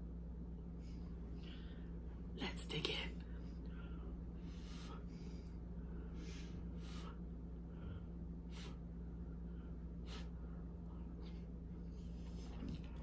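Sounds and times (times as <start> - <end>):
steady low hum: 0.0 - 13.0
short sharp breaths: 3.7 - 8.9.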